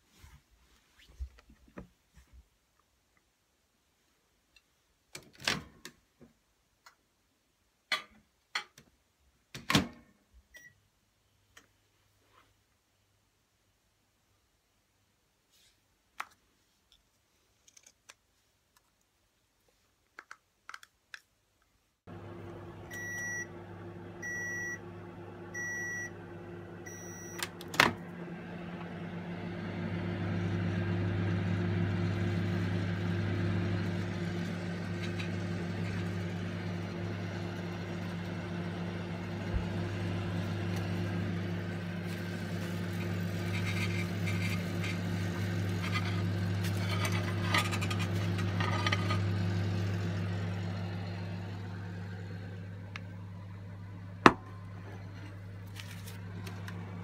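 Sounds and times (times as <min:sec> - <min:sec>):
microwave oven humming: 0:22.1 - 0:57.0.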